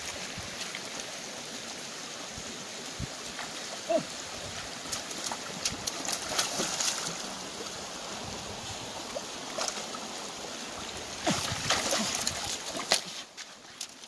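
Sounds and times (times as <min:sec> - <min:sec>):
stream flowing over rocks: 0:00.0 - 0:14.0
splashes from wading: 0:04.6 - 0:07.8, 0:09.0 - 0:10.2, 0:11.1 - 0:14.0.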